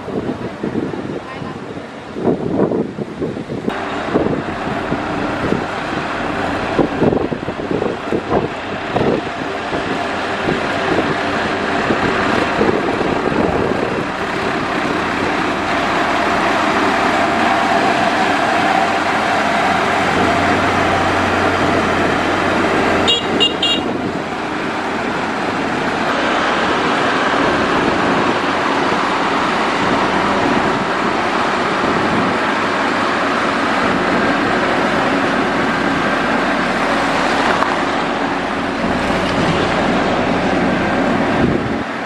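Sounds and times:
diesel engine under load: 0.0s - 42.0s.

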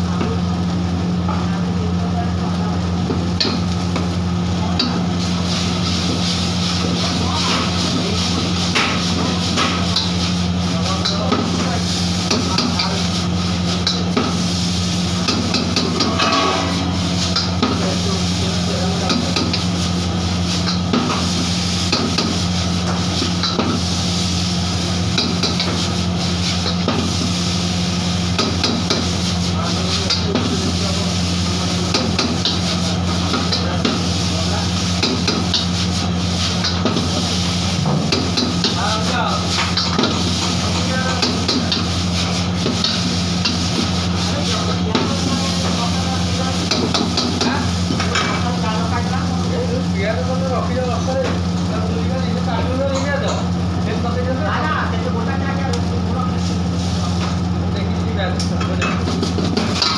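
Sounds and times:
noodles sizzling in a wok: 0.0s - 50.4s
steady low hum: 0.0s - 50.9s
ladle scraping against wok: 13.0s - 18.7s.

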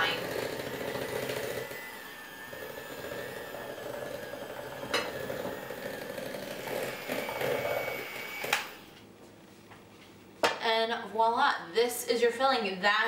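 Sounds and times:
electric hand mixer whine: 0.0s - 9.0s.

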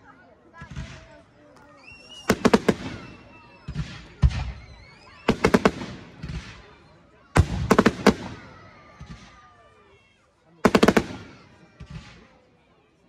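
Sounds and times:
rising firework whistles: 1.7s - 7.0s
rapid sharp firework cracks: 2.2s - 6.7s, 7.4s - 9.4s, 10.6s - 12.3s
firework booms: 2.2s - 6.8s, 7.4s - 9.4s, 10.6s - 12.3s.

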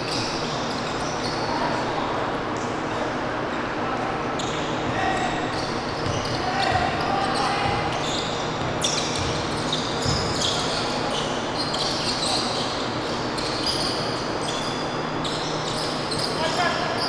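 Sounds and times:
low hum of hall: 0.0s - 17.0s
sneakers squeaking on court: 0.0s - 17.0s
basketball bouncing: 6.0s - 7.0s, 7.6s - 10.4s.

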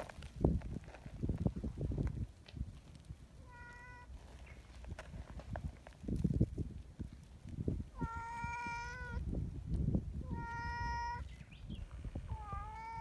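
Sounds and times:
cat meowing: 3.4s - 4.1s, 8.0s - 9.2s, 10.2s - 11.3s, 12.3s - 13.0s.

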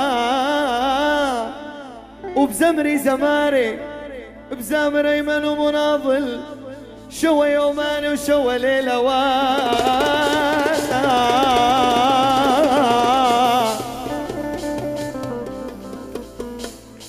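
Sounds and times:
person singing: 0.0s - 17.0s
keyboard melody with vibrato: 7.6s - 17.0s
fast tremolo plucking: 9.5s - 17.0s.

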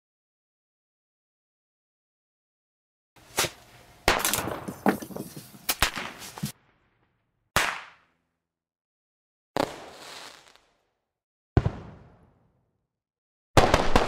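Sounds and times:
fireworks cracking and popping: 3.3s - 6.6s, 9.6s - 10.9s
firework bangs with crackle: 7.6s - 8.0s, 9.6s - 10.8s, 11.6s - 12.4s, 13.6s - 14.0s.

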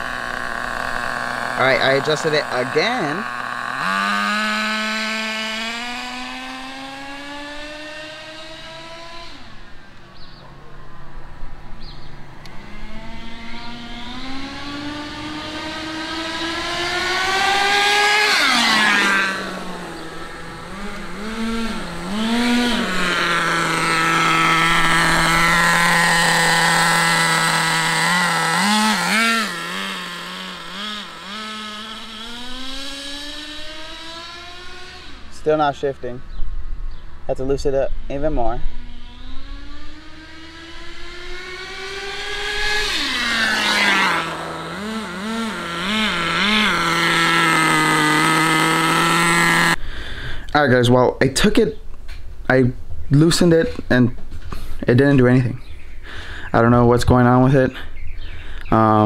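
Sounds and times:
nitro rc car engine revving: 0.0s - 10.2s, 12.0s - 36.4s, 38.3s - 49.8s.

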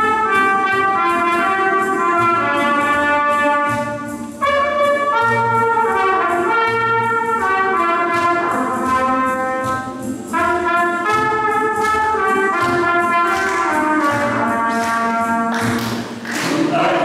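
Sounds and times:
trumpet playing slow melody: 0.0s - 15.8s.

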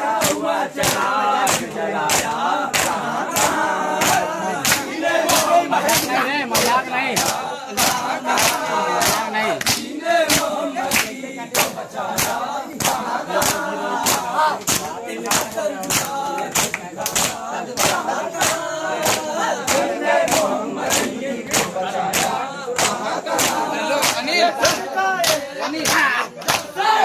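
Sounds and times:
men chanting together: 0.0s - 27.0s
hands slapping chests: 0.1s - 27.0s.

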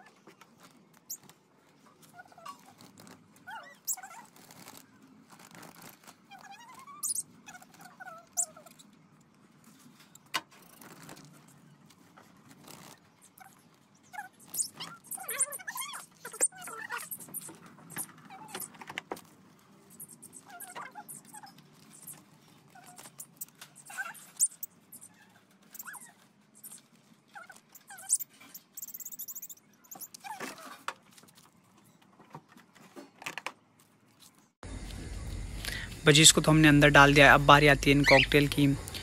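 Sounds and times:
birds squawking and chirping: 37.8s - 38.7s.

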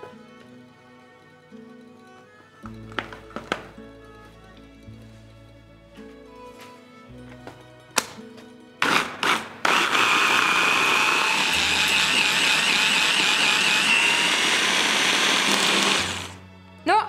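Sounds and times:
electric hand blender whine: 8.8s - 16.4s.

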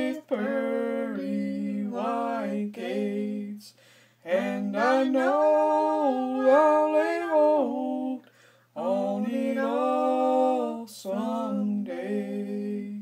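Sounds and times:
quick breath: 3.7s - 4.2s, 8.2s - 8.7s.

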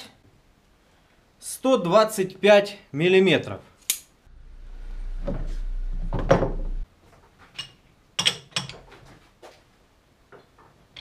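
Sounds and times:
low hum: 4.3s - 6.9s
metal knocking and scraping: 5.2s - 6.9s.

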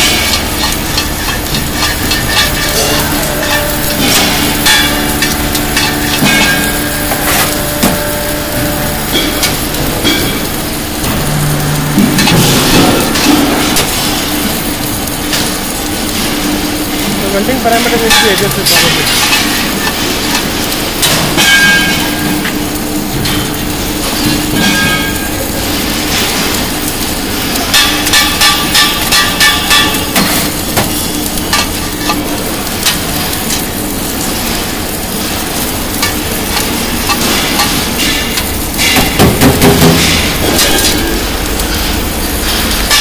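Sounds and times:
crackle of metallic clicks: 0.0s - 43.0s
machinery hum: 0.0s - 43.0s
rhythmic knocks: 0.0s - 43.0s
loud clatter: 18.0s - 43.0s.

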